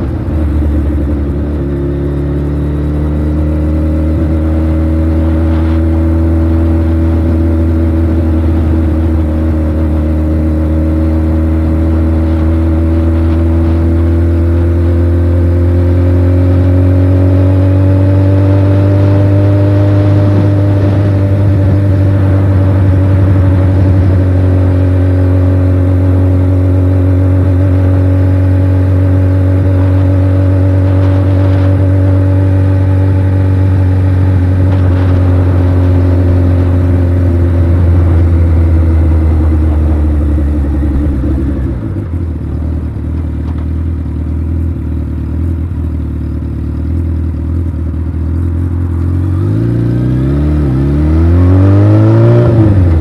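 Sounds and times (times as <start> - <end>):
motorcycle engine revving: 0.0 - 53.0
wind rushing over microphone: 17.8 - 43.0.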